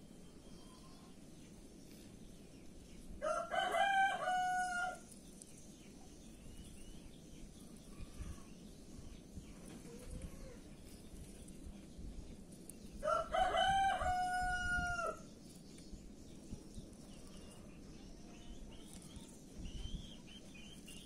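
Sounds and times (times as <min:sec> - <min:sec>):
faint high chirping: 0:00.0 - 0:03.1, 0:04.7 - 0:12.0, 0:14.7 - 0:21.0
rooster crowing: 0:03.2 - 0:05.1, 0:13.0 - 0:15.2.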